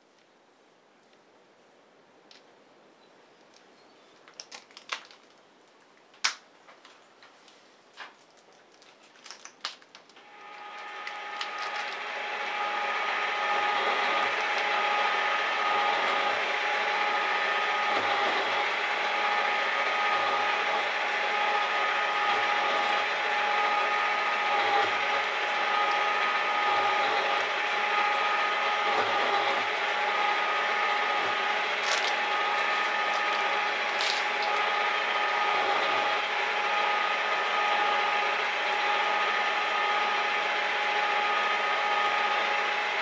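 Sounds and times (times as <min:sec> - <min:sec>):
metal shaper whining: 0:10.2 - 0:43.0.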